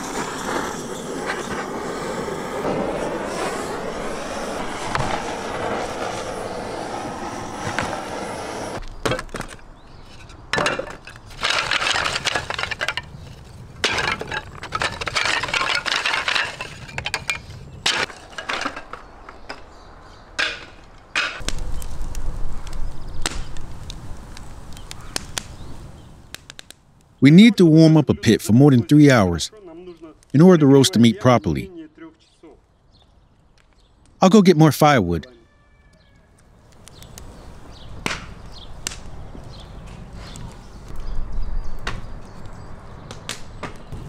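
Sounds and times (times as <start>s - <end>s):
blowtorch hissing: 0.0s - 8.8s
wooden slats clattering: 10.5s - 13.1s, 13.8s - 19.6s.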